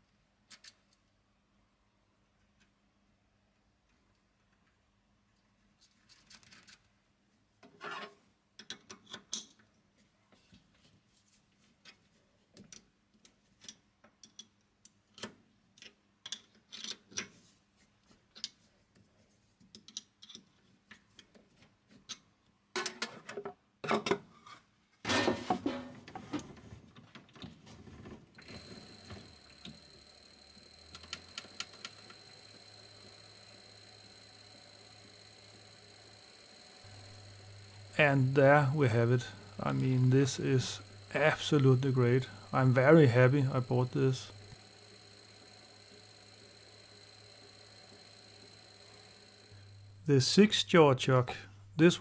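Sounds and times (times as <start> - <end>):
small metal clicks and taps: 12.6 - 17.3
lathe motor whining: 28.4 - 50.1.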